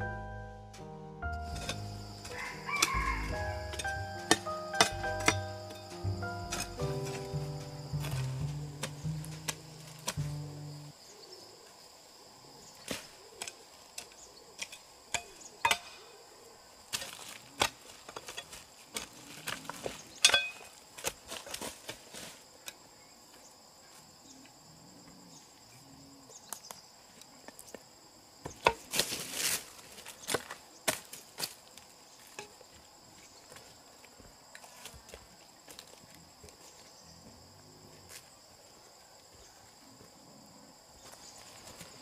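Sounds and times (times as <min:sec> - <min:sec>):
insects chirring: 0:00.0 - 0:42.0
chopping blows: 0:02.8 - 0:10.7.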